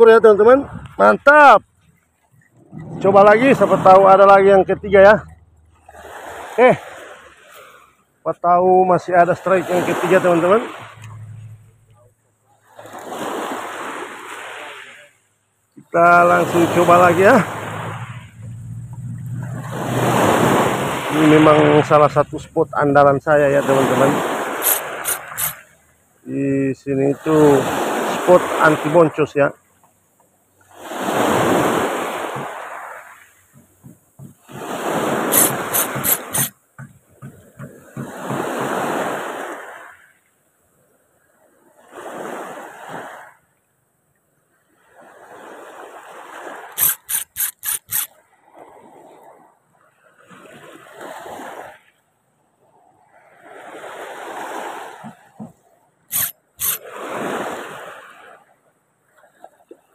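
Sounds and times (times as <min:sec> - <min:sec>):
water splashes: 0:00.0 - 0:43.8, 0:44.6 - 0:59.9
sea waves washing ashore: 0:00.0 - 0:59.9
sharp loud clicks: 0:24.6 - 0:25.6, 0:35.3 - 0:36.6, 0:46.8 - 0:48.1, 0:56.1 - 0:56.8.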